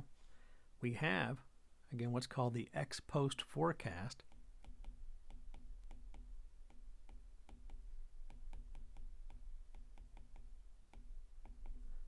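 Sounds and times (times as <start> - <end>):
stylus tapping on tablet screen: 4.2 - 12.0.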